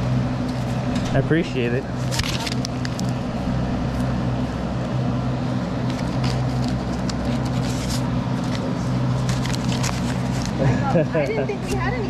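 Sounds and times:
motor humming: 0.0s - 12.0s.

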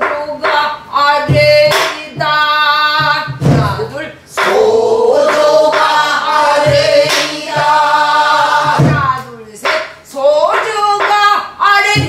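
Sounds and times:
women singing together: 0.0s - 12.0s
barrel drum strokes: 1.3s - 9.9s.

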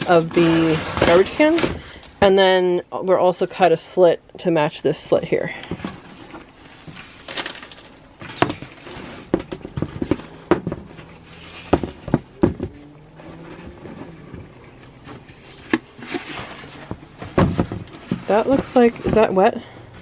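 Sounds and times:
cardboard knocks and scrapes: 8.2s - 19.6s.

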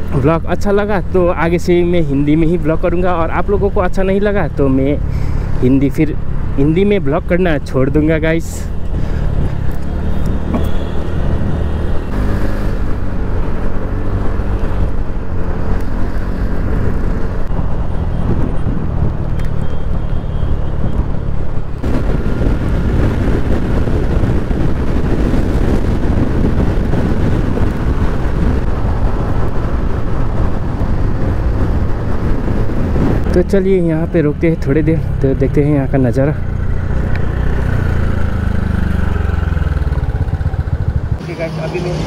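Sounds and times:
motorcycle engine hum: 0.0s - 42.0s
road noise: 0.0s - 42.0s.

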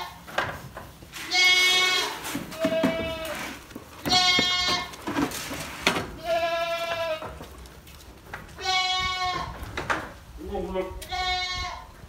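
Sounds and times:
goats bleating: 1.2s - 5.0s, 6.1s - 7.4s, 8.5s - 9.6s, 11.0s - 11.9s.

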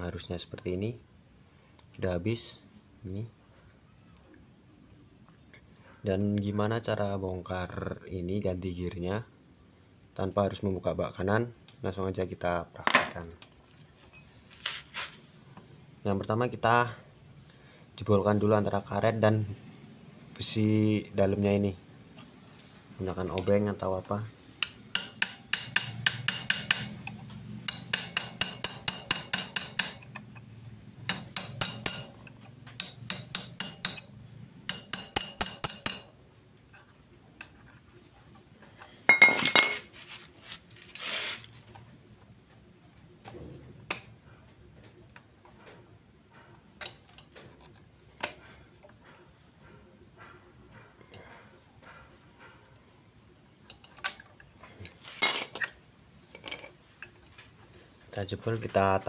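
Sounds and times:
screwdriver tapping on metal: 27.7s - 30.3s, 31.1s - 32.1s, 34.7s - 36.1s.

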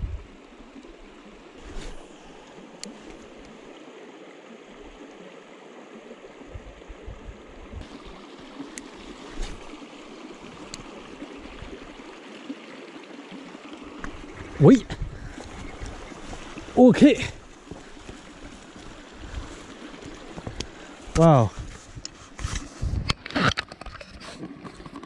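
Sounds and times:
stream running over rocks: 0.0s - 25.0s.

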